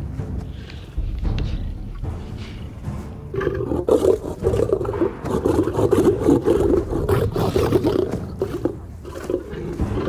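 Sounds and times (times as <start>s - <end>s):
lions snarling and growling: 3.3s - 10.0s.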